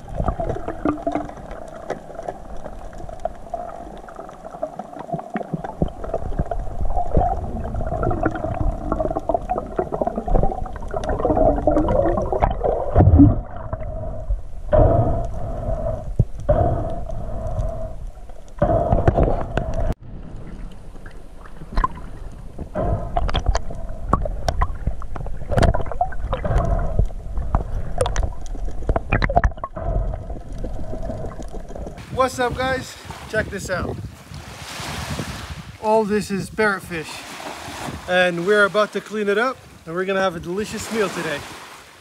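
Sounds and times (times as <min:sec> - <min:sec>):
rushing water swells: 0:00.0 - 0:14.8, 0:19.9 - 0:42.0
steady mid-pitched underwater hum: 0:00.0 - 0:32.1
gurgling water: 0:00.0 - 0:35.3.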